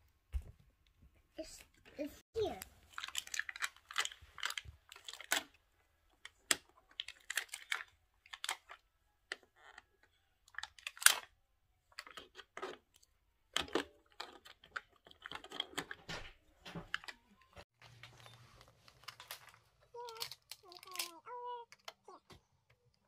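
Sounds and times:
plastic toy pieces clattering: 0:02.9 - 0:16.2, 0:18.9 - 0:22.1.

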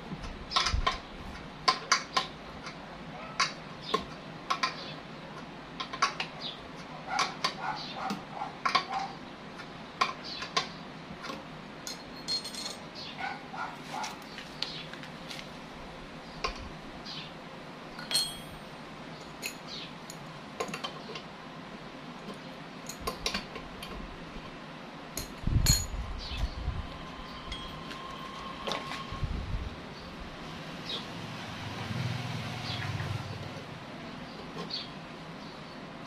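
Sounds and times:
metal tools clinking: 0:11.8 - 0:12.9, 0:18.0 - 0:20.9.

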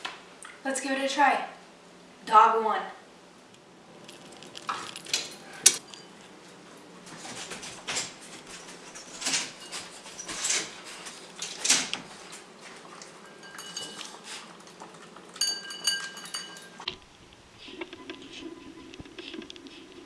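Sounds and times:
dog eating from bowl: 0:03.9 - 0:20.0
ceramic bowl clinking on tile: 0:12.9 - 0:16.9.

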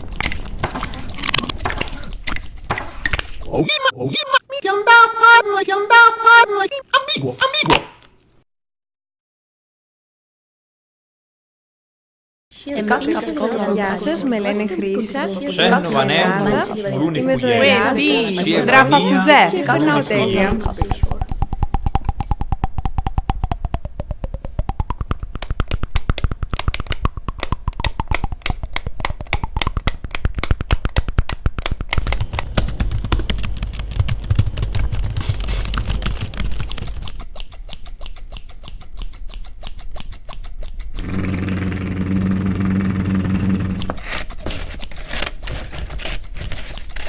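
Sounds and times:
rapid sharp clicks: 0:20.8 - 0:41.4.

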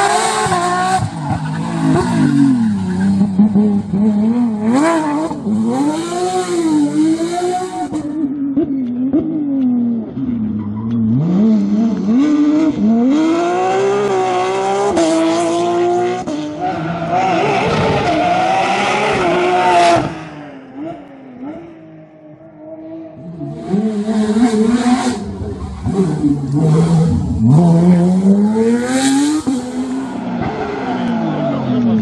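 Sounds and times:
rally car engines revving: 0:00.0 - 0:32.0.

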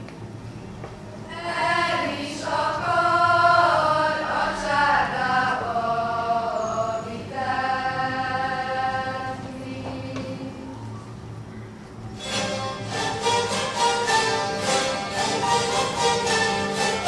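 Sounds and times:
female voices singing in unison: 0:01.3 - 0:10.8.

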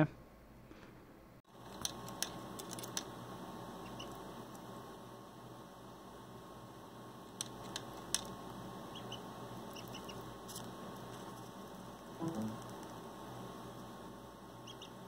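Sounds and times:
steady electrical hum: 0:00.0 - 0:15.0
duckling bill clicks: 0:01.7 - 0:03.1, 0:07.4 - 0:08.4
duckling peeping: 0:03.7 - 0:04.3, 0:08.9 - 0:10.5, 0:14.6 - 0:15.0
brief low sound: 0:12.2 - 0:12.6.

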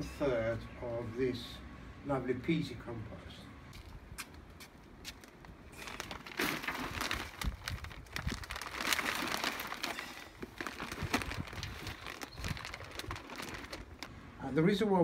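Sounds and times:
plastic sack crinkling: 0:05.3 - 0:14.2
compost rustling as it pours: 0:05.7 - 0:14.8.

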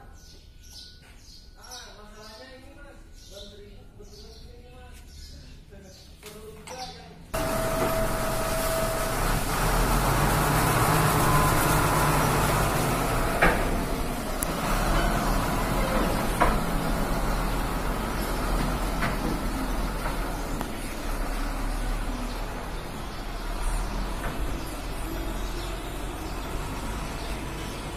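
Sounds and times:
truck diesel engine running: 0:07.4 - 0:27.9.

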